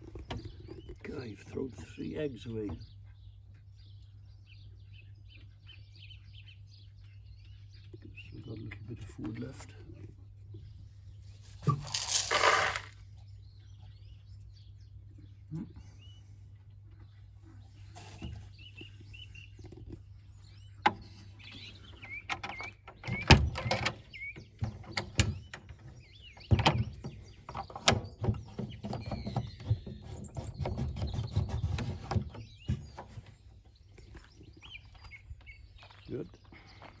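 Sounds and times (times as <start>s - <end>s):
birds chirping: 0.0s - 37.0s
knocks and rustling handling noise: 11.3s - 13.0s, 20.8s - 35.4s.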